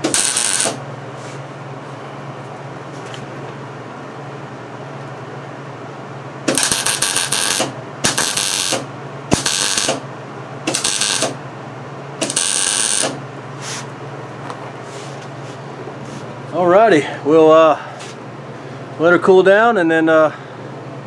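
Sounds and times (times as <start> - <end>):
welder crackling: 0.0 - 0.8, 6.5 - 10.0, 10.7 - 11.4, 12.2 - 13.2
steady low hum: 0.0 - 21.0.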